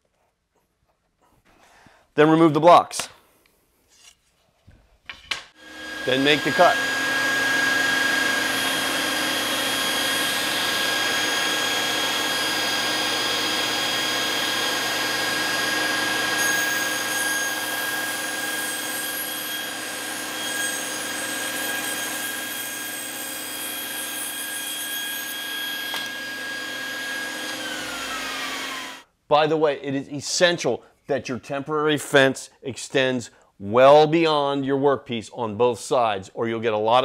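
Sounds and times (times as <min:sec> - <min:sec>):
shop vacuum hissing: 0:05.6 - 0:29.0
table saw whining: 0:05.6 - 0:29.0.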